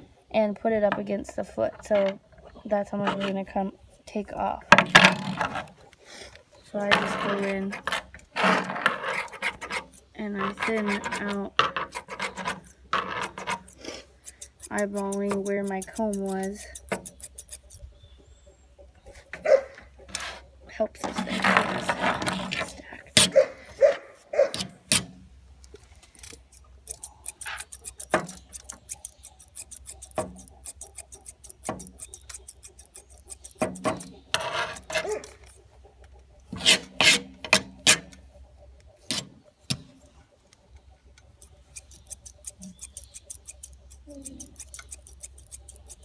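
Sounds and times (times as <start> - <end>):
shears snipping dog hair: 9.1 - 17.8, 26.2 - 35.5, 41.2 - 46.0.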